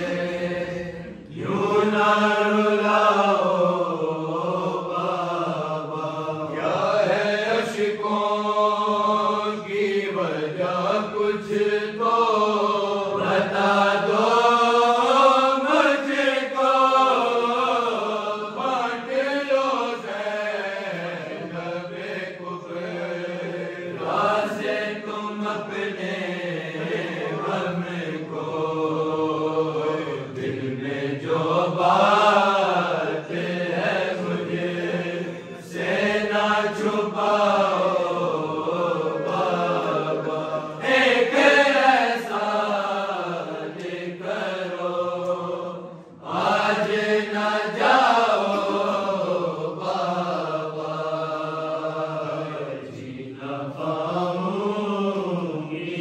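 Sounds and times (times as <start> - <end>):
men chanting a lament: 0.0 - 56.0.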